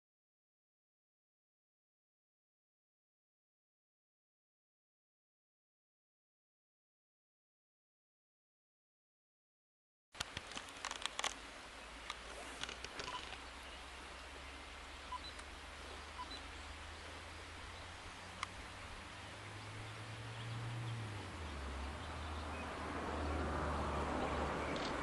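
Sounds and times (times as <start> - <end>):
faint short peeps: 12.4 - 13.4, 15.1 - 15.5, 16.2 - 16.5.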